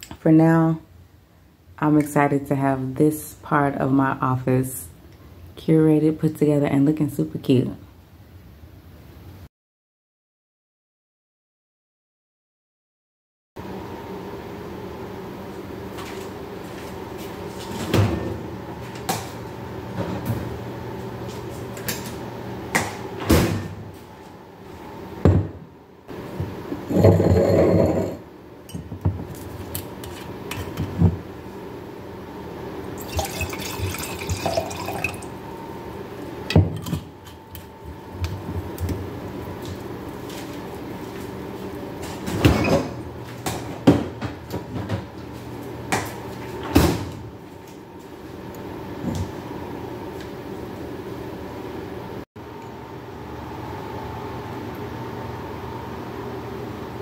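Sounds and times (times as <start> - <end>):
wine pouring into glass: 33.0 - 35.4.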